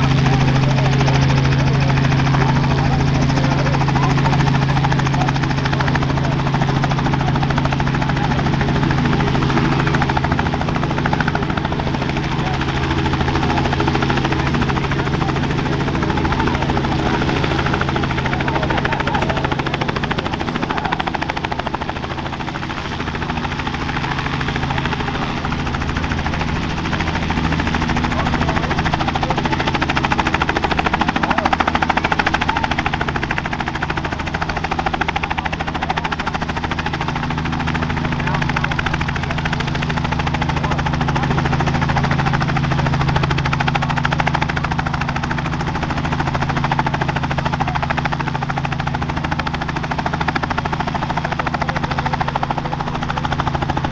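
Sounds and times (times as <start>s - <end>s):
helicopter engine and rotors: 0.0s - 53.9s.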